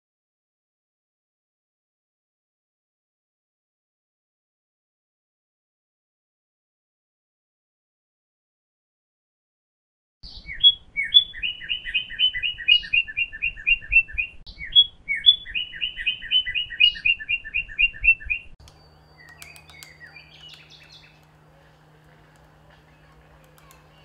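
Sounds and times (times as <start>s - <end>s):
faint bird chirps: 10.2s - 21.3s
songbird singing trill: 10.2s - 21.8s.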